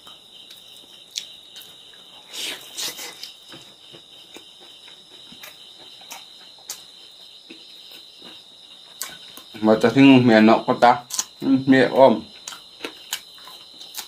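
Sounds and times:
chewing and lip-smacking: 0.0 - 2.0, 2.6 - 9.6, 12.3 - 14.0
crickets trilling: 0.0 - 14.0.

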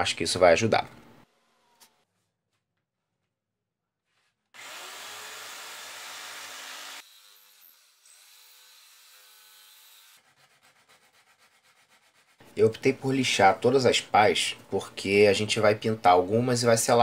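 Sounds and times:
jigsaw sawing wood: 4.5 - 10.6
hand sanding strokes: 10.2 - 12.6.

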